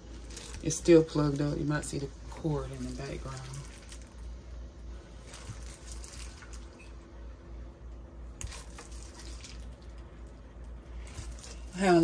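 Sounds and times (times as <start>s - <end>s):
low steady hum: 0.0s - 12.0s
wet meat plops and squelches: 8.4s - 10.1s.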